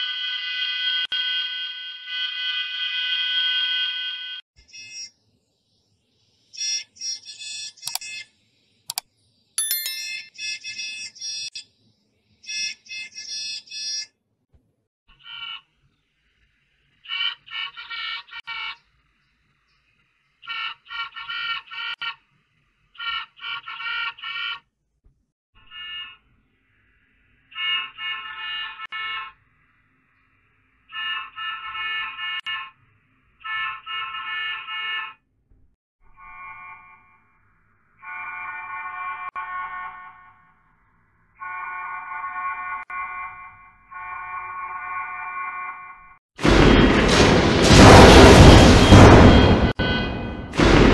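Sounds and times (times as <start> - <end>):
sharp clicks: 7.9 - 8.1
ding: 9.6 - 10.3
faint high tone: 9.6 - 10.3
processed bus horn honking: 38.0 - 40.5, 41.4 - 46.0, 49.4 - 50.5
high-pitched beeping honks: 48.7 - 50.5.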